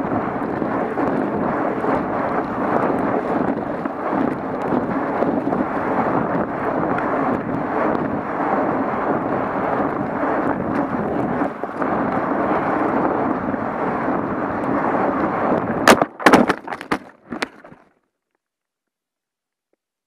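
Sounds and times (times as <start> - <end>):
wind rushing over microphone: 0.0 - 17.8
knocks and thuds of impact: 15.8 - 17.8.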